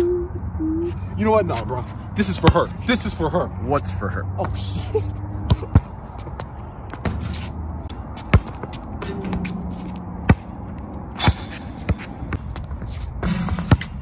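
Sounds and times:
basketball bouncing on concrete: 2.3s - 2.7s, 5.4s - 14.0s.

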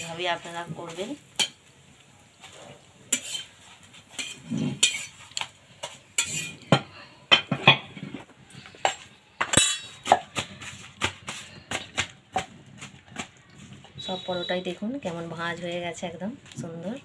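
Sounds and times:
metal spatula scraping iron pan: 2.4s - 12.9s.

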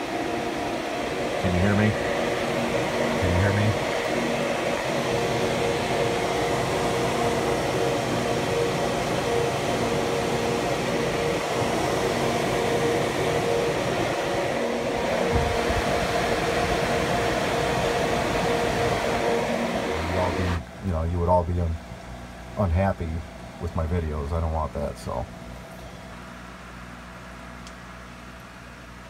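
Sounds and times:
cooling fans humming: 0.0s - 29.0s.

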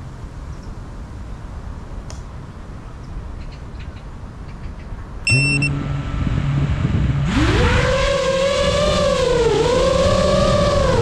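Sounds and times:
short electronic beep: 5.3s - 6.0s
quadcopter motors humming and buzzing: 5.3s - 11.0s.

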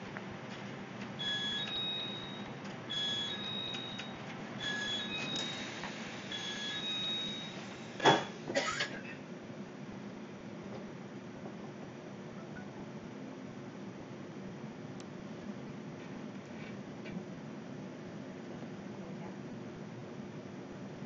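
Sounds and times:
train carriage hum: 0.0s - 19.0s
electronic two-tone beeps: 6.3s - 7.6s.

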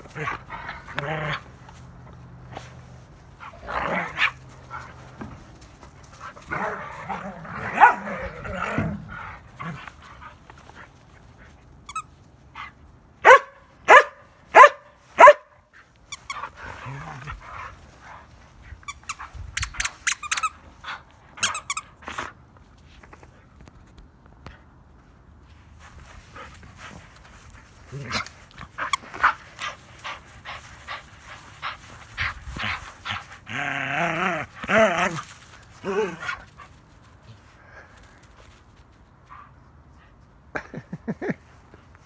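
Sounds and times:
dogs growling: 3.4s - 5.0s, 6.2s - 10.1s, 16.5s - 17.7s, 32.2s - 36.4s
dog barking: 13.2s - 15.6s.

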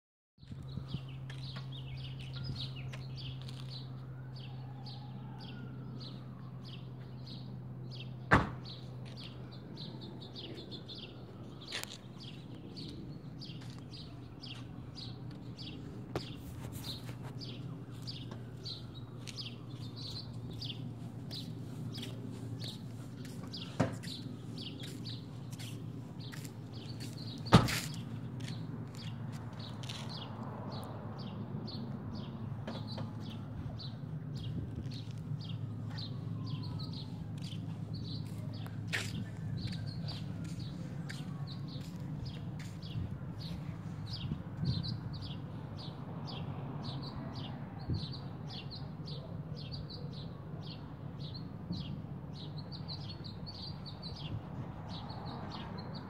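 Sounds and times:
loud sharp knocks: 8.3s - 8.7s.

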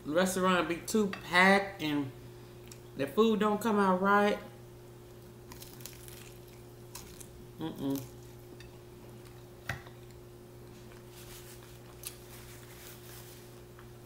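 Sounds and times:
steady low hum: 0.0s - 14.0s
mouth sounds eating crunchy taco: 5.1s - 13.9s.

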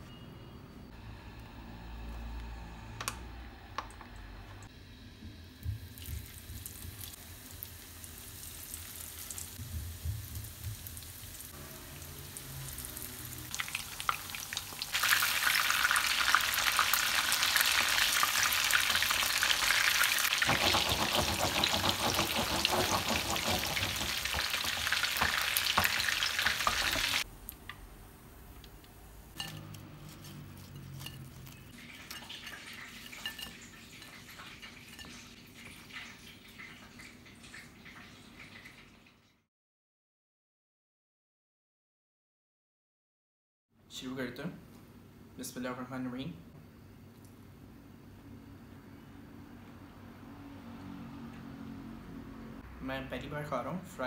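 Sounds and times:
fish frying in crackling oil: 5.6s - 27.3s, 30.8s - 39.2s.

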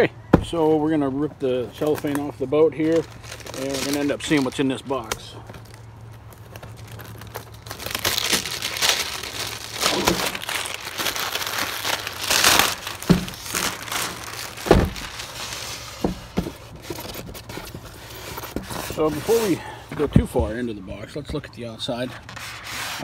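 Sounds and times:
dull thumps: 0.3s - 0.8s, 13.0s - 15.3s, 15.9s - 19.0s
cellophane crinkling: 1.7s - 19.6s.

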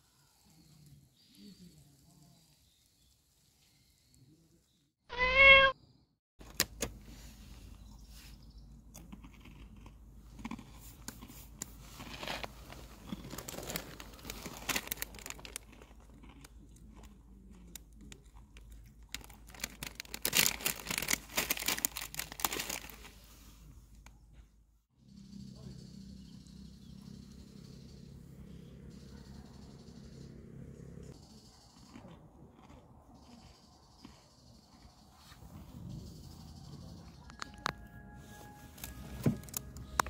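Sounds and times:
cat meowing: 5.1s - 5.8s
plastic wrapper rustling and tearing: 12.0s - 16.0s, 18.8s - 23.2s, 38.8s - 40.0s.

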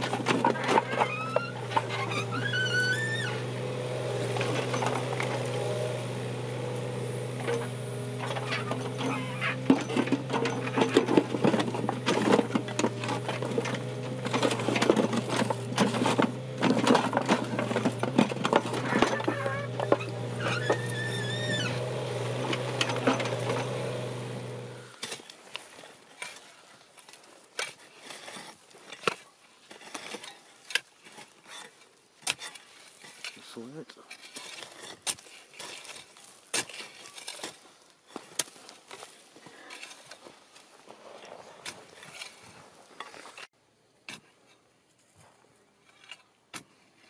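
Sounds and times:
bucket scraping stone rubble: 0.0s - 5.9s, 7.3s - 43.5s
diesel engine running: 0.0s - 24.9s
hand tool scraping soil: 0.0s - 47.0s
hydraulic whine: 0.1s - 25.0s.

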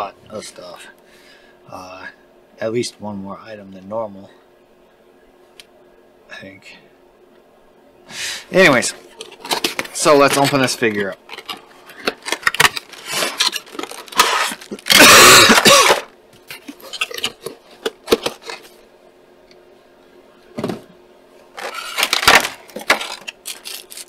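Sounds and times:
plastic packaging crackling: 9.2s - 18.7s, 21.6s - 24.0s.

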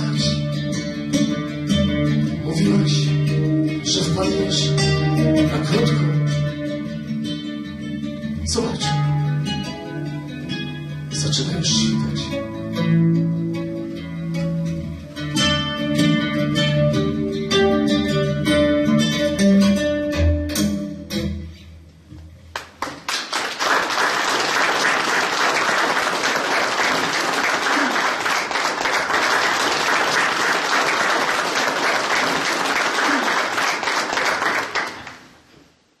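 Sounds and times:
acoustic guitar playing: 0.0s - 22.5s, 24.4s - 35.5s
audience applauding: 22.5s - 35.4s.

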